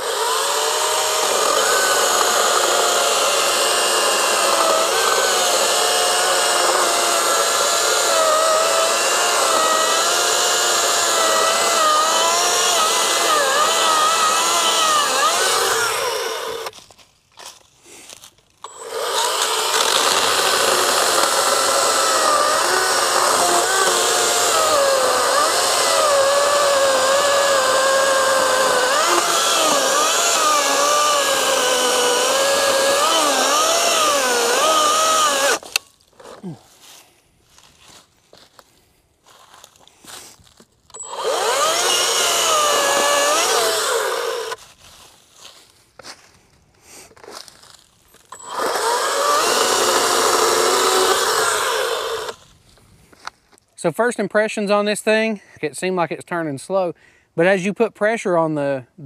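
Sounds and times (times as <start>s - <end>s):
chainsaw cutting into log: 0.0s - 16.8s, 18.6s - 36.6s, 40.9s - 44.6s, 48.2s - 52.5s.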